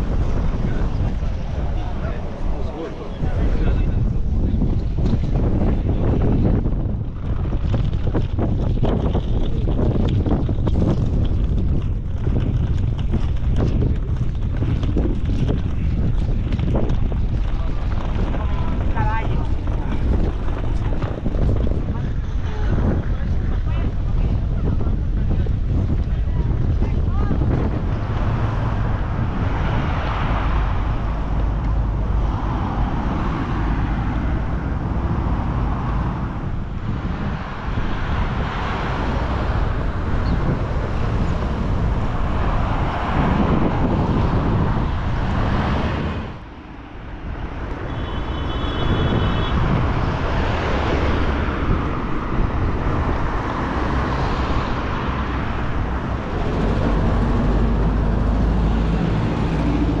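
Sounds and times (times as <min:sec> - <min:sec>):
cars passing on street: 0:00.0 - 1:00.0.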